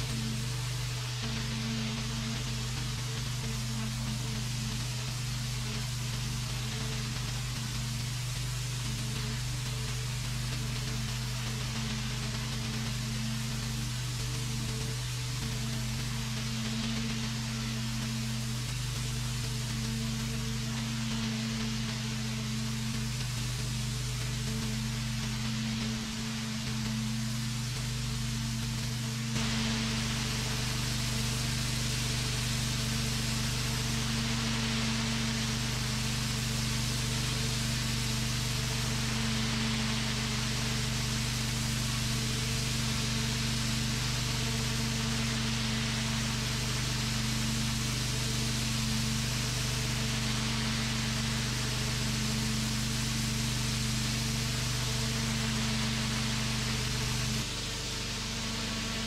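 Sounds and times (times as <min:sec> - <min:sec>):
high-pressure water jet hissing: 0:11.2 - 0:59.0
pressure washer machine hum: 0:22.6 - 0:59.0.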